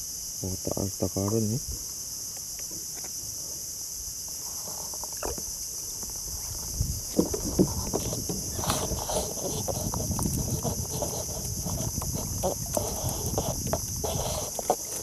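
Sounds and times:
insect chorus: 0:00.0 - 0:15.0
fishing gear knocks and clicks: 0:07.1 - 0:15.0.

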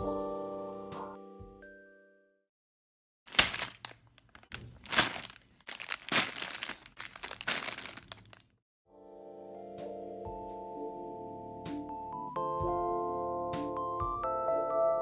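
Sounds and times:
plastic bag of lego crinkling: 0:03.3 - 0:08.5
sharp clicks of plastic pieces: 0:03.3 - 0:08.5.

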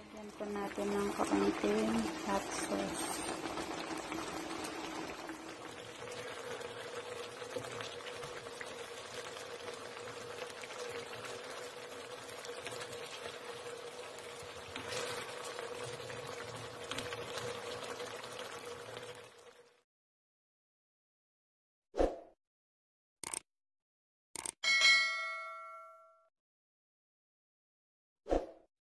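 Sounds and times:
sauce bubbling in a pan: 0:00.2 - 0:19.8.

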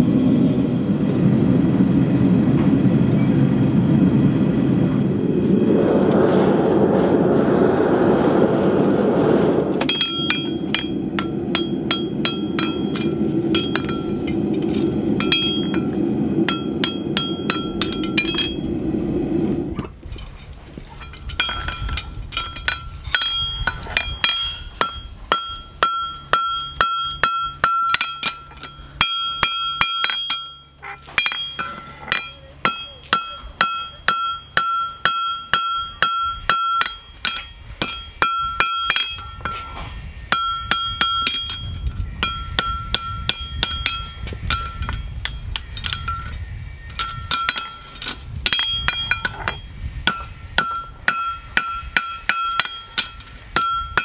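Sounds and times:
hammer striking steel: 0:09.8 - 0:18.6, 0:21.0 - 0:54.0.

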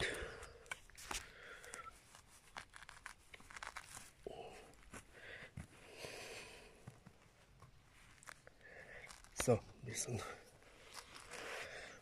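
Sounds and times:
turf tearing and crackling: 0:00.9 - 0:04.9, 0:07.9 - 0:09.6, 0:10.6 - 0:11.5.

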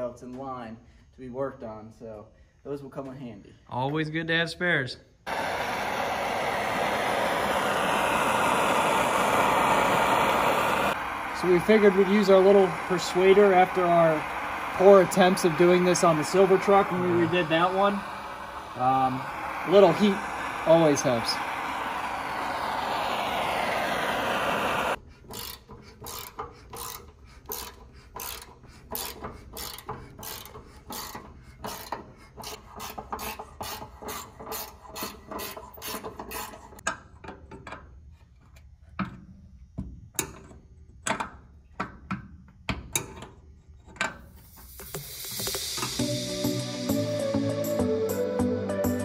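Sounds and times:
butane torch hissing: 0:05.3 - 0:25.0, 0:44.3 - 0:48.3
hand ratchet clicking: 0:25.2 - 0:36.9.

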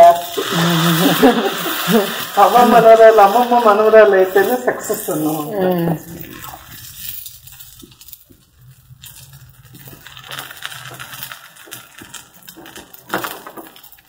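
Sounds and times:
batter sizzling on hot griddle: 0:00.0 - 0:14.0.

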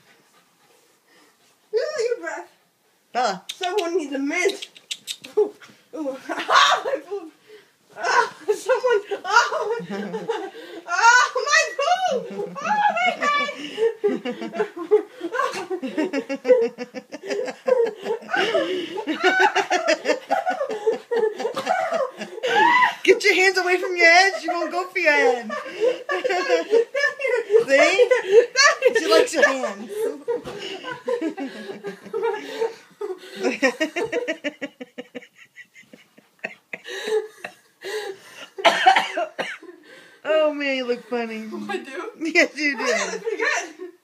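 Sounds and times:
people laughing hard: 0:08.1 - 0:23.0, 0:24.2 - 0:39.8.

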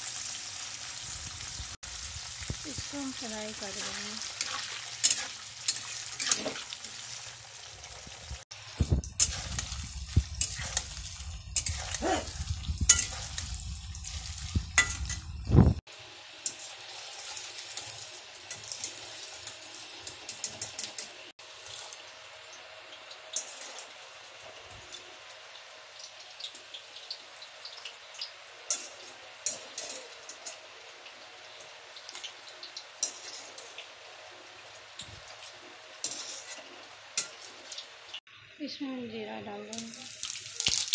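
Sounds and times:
food sizzling in hot oil: 0:00.0 - 0:40.9
spatula scraping metal pan: 0:03.8 - 0:06.7, 0:11.6 - 0:12.1, 0:12.9 - 0:15.2, 0:36.0 - 0:37.5.

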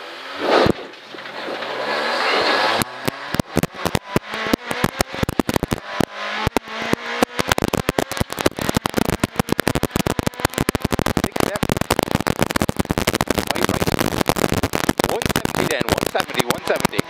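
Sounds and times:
car engine revving: 0:00.0 - 0:17.0
gravel clattering against car underside: 0:00.7 - 0:14.0.

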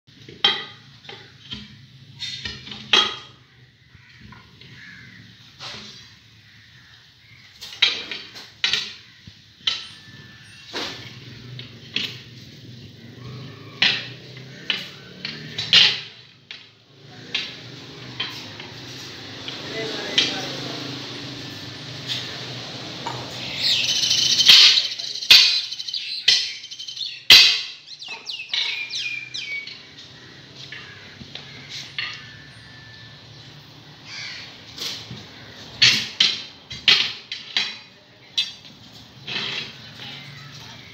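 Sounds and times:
tyre irons clanking on wheel rim: 0:00.1 - 0:40.9
high falling chirps: 0:23.0 - 0:29.9.

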